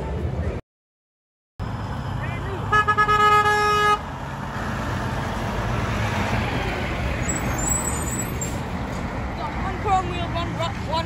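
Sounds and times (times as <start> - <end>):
truck engine driving past: 1.6 - 11.0
truck horn blast: 2.7 - 4.1.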